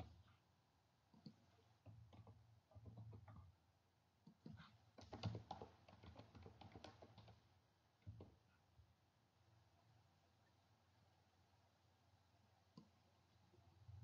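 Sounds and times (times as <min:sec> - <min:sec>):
faint keyboard typing: 0:01.1 - 0:03.6, 0:04.2 - 0:08.5.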